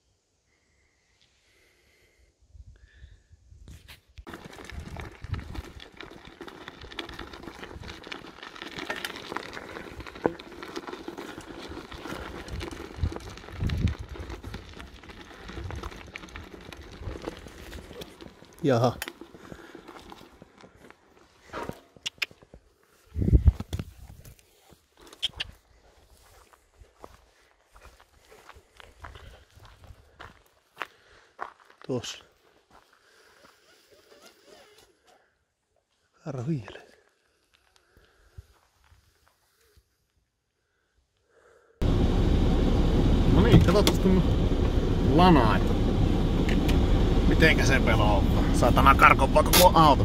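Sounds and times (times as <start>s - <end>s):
footsteps on gravel: 4.3s - 33.2s.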